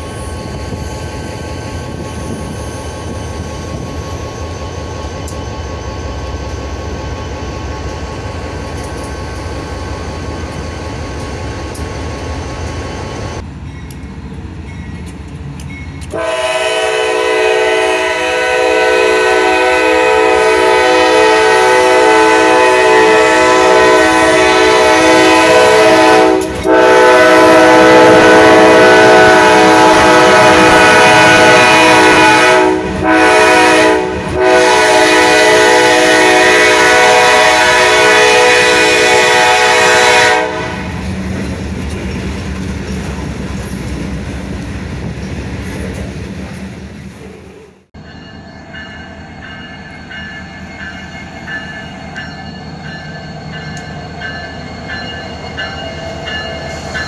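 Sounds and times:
diesel locomotives rumbling: 0.0 - 57.0
locomotive air horn blasts: 16.1 - 41.0.

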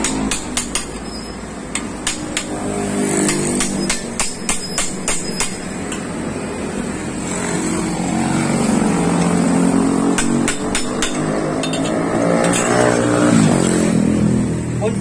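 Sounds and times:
hammer strikes on metal: 0.0 - 1.1, 1.7 - 6.0, 10.1 - 13.0.

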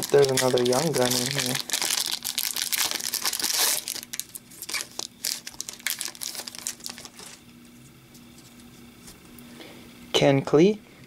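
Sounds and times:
foil wrapper crinkling: 0.0 - 7.5.

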